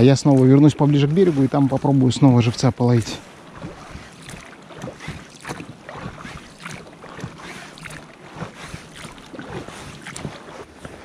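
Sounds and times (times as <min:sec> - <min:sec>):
oars splashing in water: 0:00.0 - 0:11.0
water lapping against rubber hull: 0:00.0 - 0:11.0.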